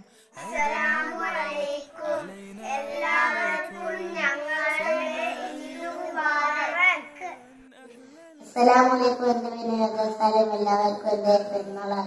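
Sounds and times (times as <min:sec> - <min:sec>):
young children singing: 0:00.4 - 0:07.7.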